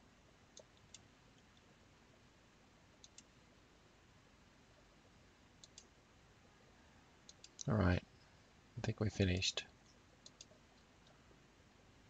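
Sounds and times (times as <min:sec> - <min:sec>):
computer mouse clicking: 0:00.5 - 0:01.7, 0:03.0 - 0:03.4, 0:05.6 - 0:05.9, 0:07.2 - 0:07.7, 0:09.8 - 0:11.2.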